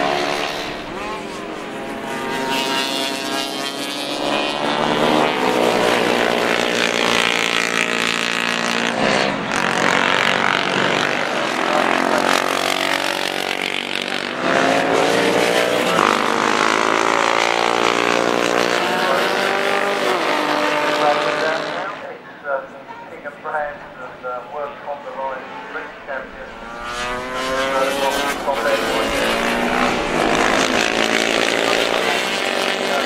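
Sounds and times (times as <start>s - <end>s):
racing motorcycles passing at speed: 0.0s - 22.2s, 24.2s - 33.0s.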